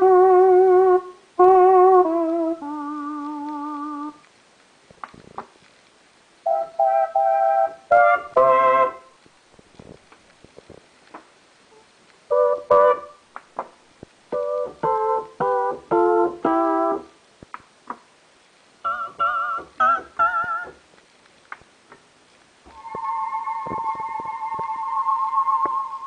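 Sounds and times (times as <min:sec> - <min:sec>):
synthesizer notes and chords: 0:22.7 - 0:26.0.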